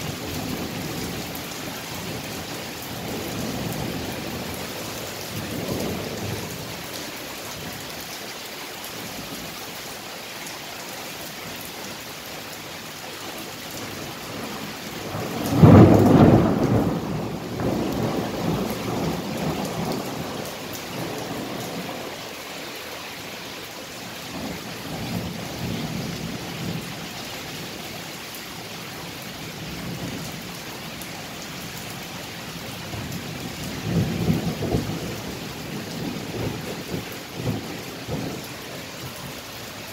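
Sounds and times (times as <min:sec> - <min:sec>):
steady rain: 0:00.0 - 0:39.9
thunder rumbling: 0:13.8 - 0:22.1, 0:24.3 - 0:26.9, 0:32.9 - 0:39.2.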